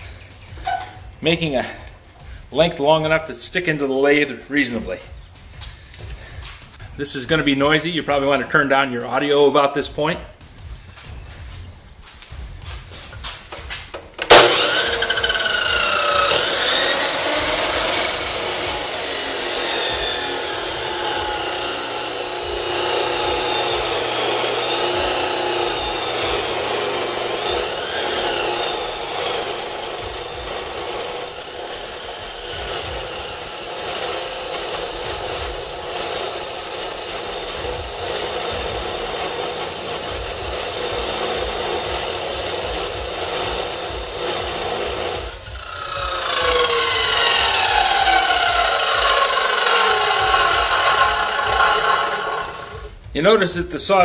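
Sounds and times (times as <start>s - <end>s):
chop saw grinding through steel: 14.2s - 53.0s.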